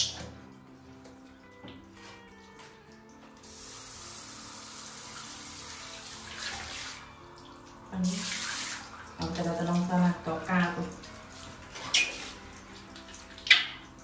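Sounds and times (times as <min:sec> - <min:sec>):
shower spraying on tiles: 0:00.0 - 0:07.2, 0:07.9 - 0:14.0.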